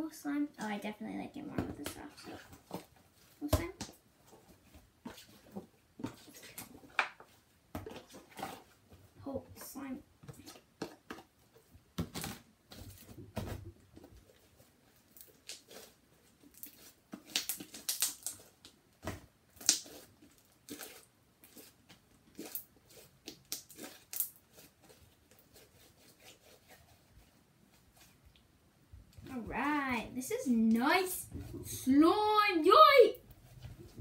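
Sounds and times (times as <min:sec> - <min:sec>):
sticky slime crackling and tearing: 0:15.1 - 0:18.8, 0:19.6 - 0:24.9.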